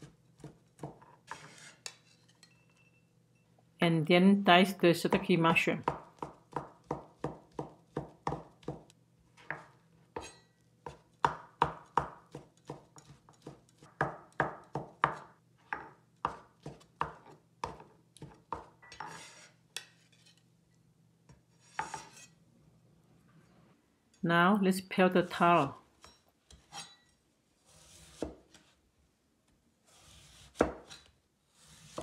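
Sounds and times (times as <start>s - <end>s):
blade scraping across board: 1.3s - 2.3s, 19.0s - 20.4s, 21.6s - 22.4s.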